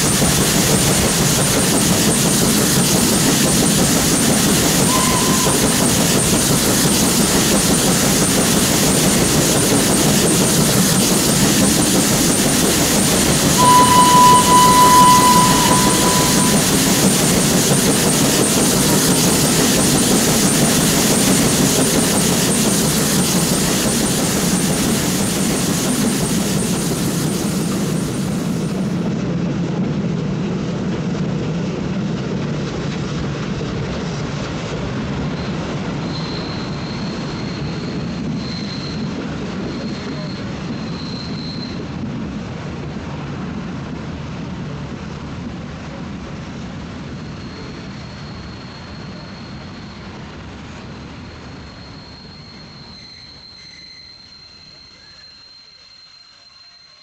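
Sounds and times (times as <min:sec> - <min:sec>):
train whistle: 0:00.0 - 0:28.8
steam train rumbling on track: 0:00.0 - 0:53.2.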